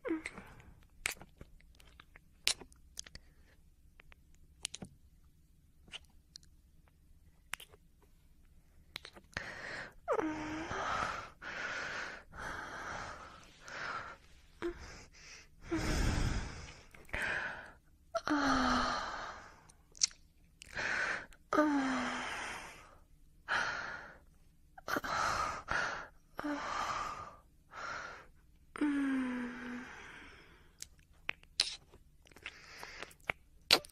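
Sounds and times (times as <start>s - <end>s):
person breathing heavily: 9.4s - 19.6s.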